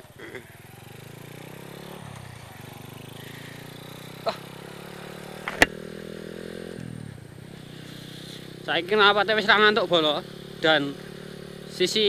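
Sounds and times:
motorcycle engine running: 0.0s - 12.0s
sharp click: 5.5s - 5.8s.

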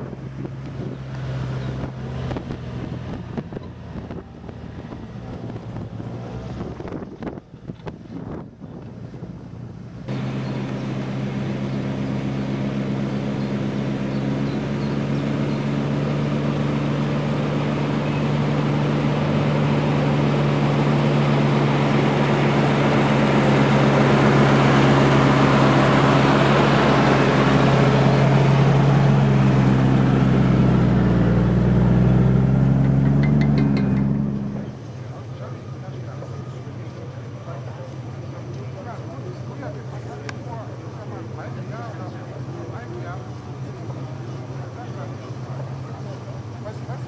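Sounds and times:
car engine pulling under load: 0.0s - 47.0s.

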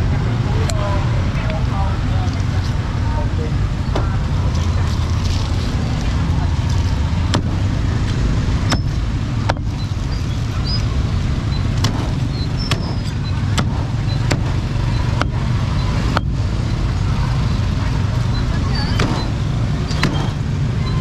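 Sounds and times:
street traffic rumble: 0.0s - 21.0s
cleaver chopping on board: 11.8s - 15.4s, 20.0s - 20.4s.

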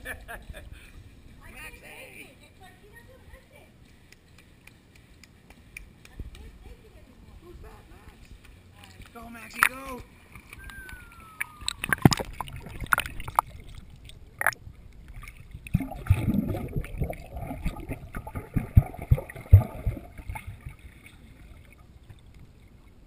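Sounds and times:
muffled underwater sloshing: 8.4s - 23.0s
water splashes: 8.8s - 23.0s.

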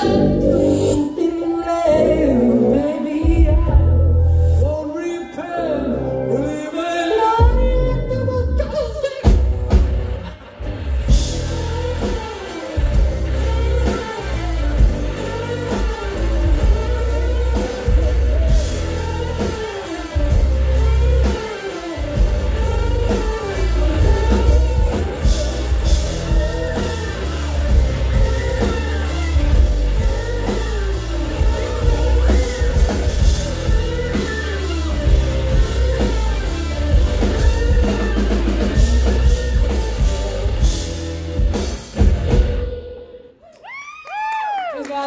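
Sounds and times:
heavy bass guitar: 0.0s - 1.2s, 1.9s - 4.8s, 7.4s - 43.3s
sliding electric guitar line: 0.0s - 43.3s
drum kit with cymbal crashes: 9.2s - 42.8s.

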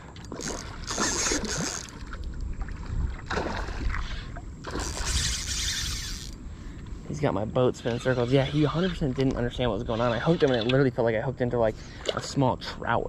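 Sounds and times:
fish thrashing and splashing: 0.3s - 6.2s.

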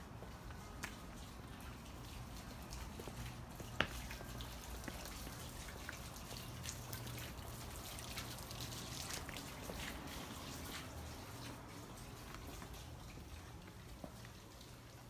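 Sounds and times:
fountain trickling and dripping: 0.0s - 15.0s.

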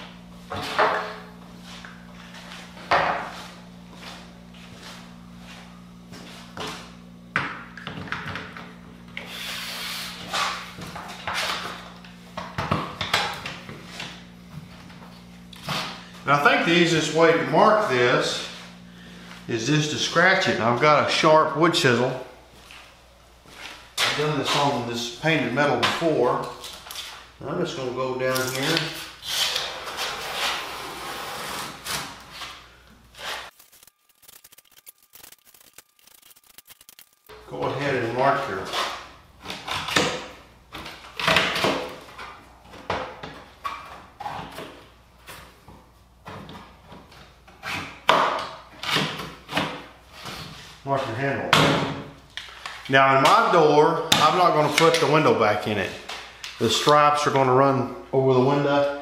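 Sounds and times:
low hum: 33.5s - 37.8s.

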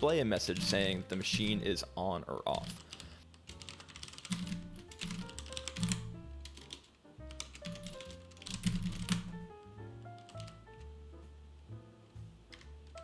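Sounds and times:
typing on computer keyboard: 2.6s - 9.4s, 10.2s - 10.6s.

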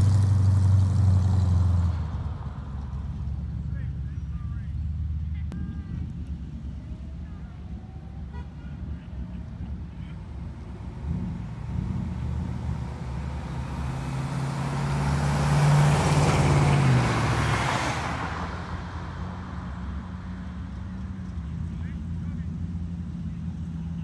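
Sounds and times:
car driving past: 0.0s - 5.1s, 10.2s - 22.2s
low engine rumble: 0.0s - 24.0s.

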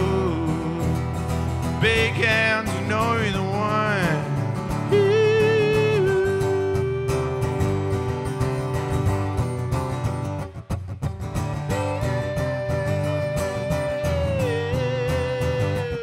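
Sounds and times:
acoustic guitar strumming: 0.0s - 16.0s
man singing long note: 1.8s - 7.5s.

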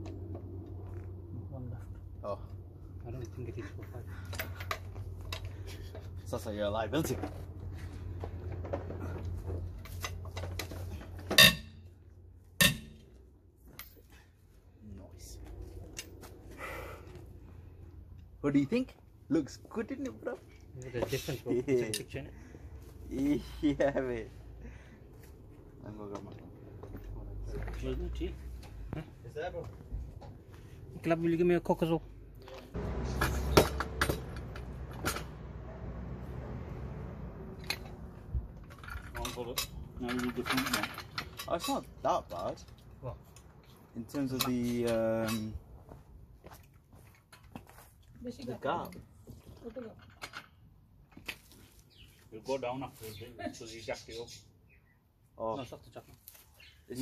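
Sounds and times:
motor vehicle rumbling: 0.0s - 47.1s
sharp metallic clanks: 9.8s - 11.9s, 12.6s - 13.1s, 32.8s - 35.6s.

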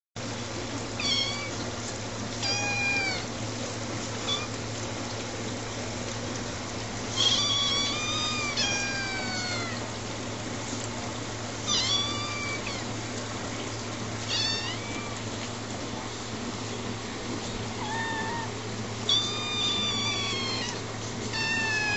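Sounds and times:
kittens meowing: 1.0s - 1.6s, 2.4s - 3.3s, 7.1s - 9.9s, 11.6s - 12.9s, 14.3s - 15.2s, 17.8s - 21.9s.

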